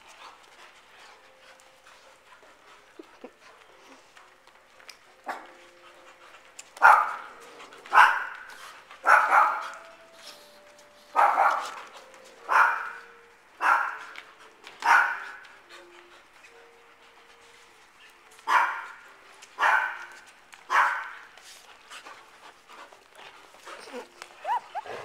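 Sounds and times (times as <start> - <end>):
dog barking: 6.8 - 7.3, 7.9 - 8.4, 9.0 - 9.8, 11.2 - 11.8, 12.5 - 13.0, 13.6 - 14.1, 14.8 - 15.4, 18.4 - 19.0, 19.6 - 20.1, 20.7 - 21.3.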